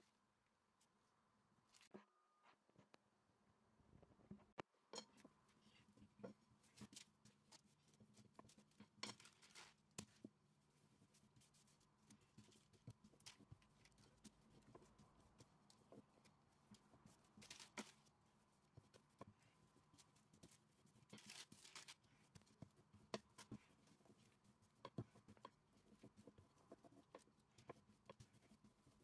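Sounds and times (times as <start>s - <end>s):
paper rustling: 6.6s - 10.3s, 17.2s - 18.1s, 20.0s - 22.6s.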